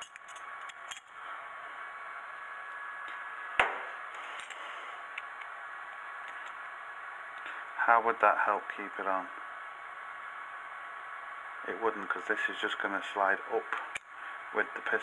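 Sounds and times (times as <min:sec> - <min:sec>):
sharp knock: 0:03.6 - 0:03.9.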